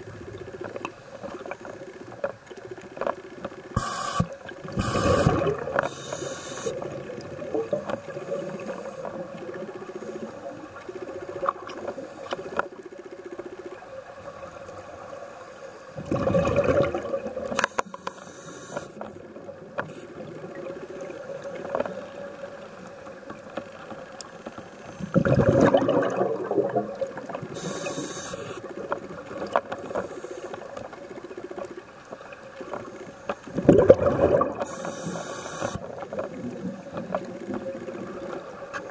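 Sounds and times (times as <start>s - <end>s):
faint underwater crackle: 0.0s - 38.9s
regulator inhale hiss: 3.8s - 6.9s, 9.8s - 10.6s, 11.8s - 12.6s, 17.6s - 19.1s, 24.2s - 25.2s, 27.5s - 28.7s, 29.8s - 31.1s, 34.6s - 35.9s
exhaled bubbles rushing: 4.6s - 5.9s, 16.0s - 17.6s, 25.0s - 27.6s, 33.5s - 34.8s.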